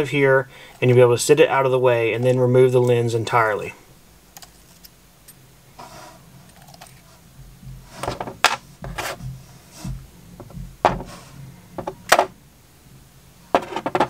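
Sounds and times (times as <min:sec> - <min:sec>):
faint low hum: 0:00.0 - 0:14.0.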